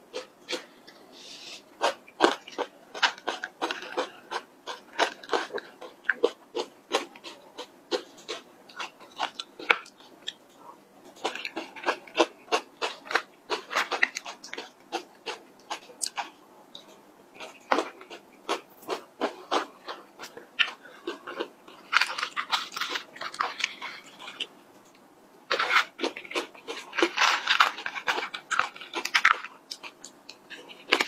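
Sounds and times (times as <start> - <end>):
chewing and crunching: 1.8 - 31.0.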